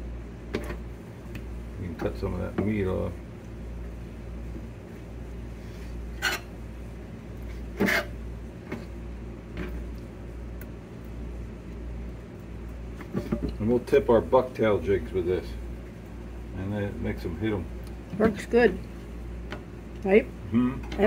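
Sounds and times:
steady low hum: 0:00.0 - 0:21.0
knife scraping on cutting board: 0:06.2 - 0:06.5, 0:07.7 - 0:08.1.

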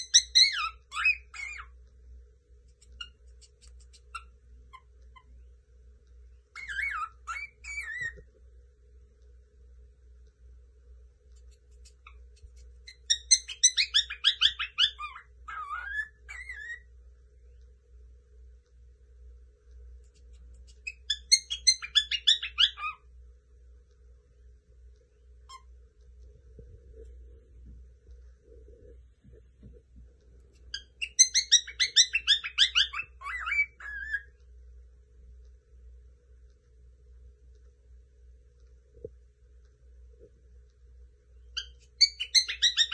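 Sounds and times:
cockatiel whistled warbling: 0:00.0 - 0:01.7, 0:06.6 - 0:08.2, 0:12.9 - 0:16.9, 0:20.8 - 0:23.0, 0:30.7 - 0:34.3, 0:41.6 - 0:42.9
cockatiel chirping: 0:00.0 - 0:01.8, 0:02.7 - 0:05.4, 0:06.5 - 0:08.3, 0:11.3 - 0:16.9, 0:20.0 - 0:23.1, 0:25.4 - 0:25.8, 0:30.5 - 0:34.4, 0:41.5 - 0:42.9.

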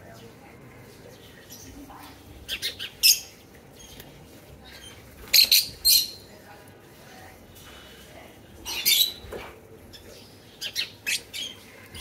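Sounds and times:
lovebirds high-pitched calls: 0:01.2 - 0:06.3, 0:08.6 - 0:12.0.

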